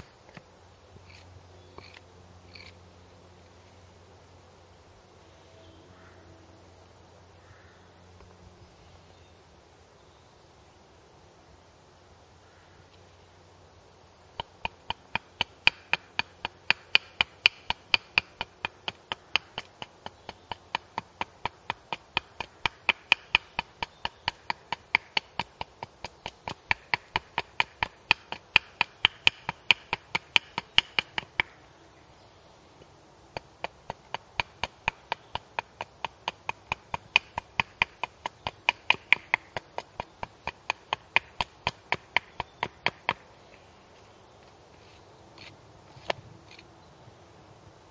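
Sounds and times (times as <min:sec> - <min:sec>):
hatchet chopping wood: 0:14.4 - 0:31.6, 0:33.3 - 0:43.3.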